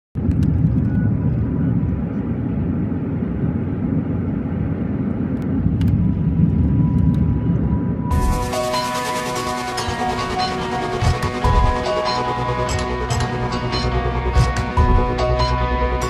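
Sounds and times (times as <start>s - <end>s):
engine and road noise: 0.2s - 16.0s
music: 6.8s - 16.0s.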